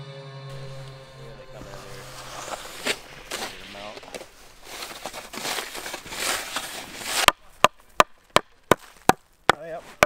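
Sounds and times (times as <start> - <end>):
hatchet chopping log: 6.6 - 10.0.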